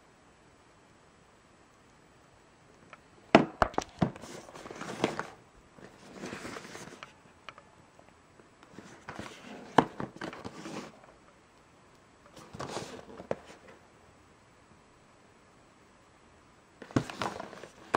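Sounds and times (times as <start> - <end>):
packaging rustling and scraping: 3.8 - 7.2, 8.7 - 11.2, 12.3 - 13.8, 16.8 - 17.9.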